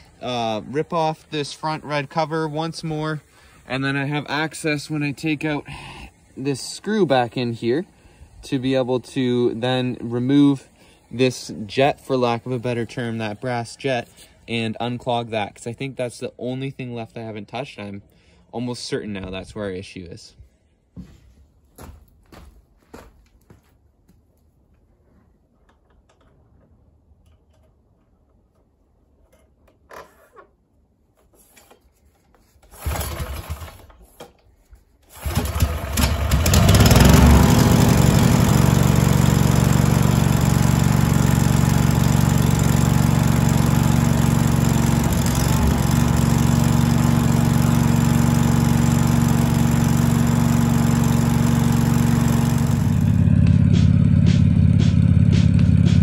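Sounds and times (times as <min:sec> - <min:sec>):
tractor engine starting and running: 0:00.0 - 0:16.3, 0:32.6 - 0:34.3, 0:35.0 - 0:56.0.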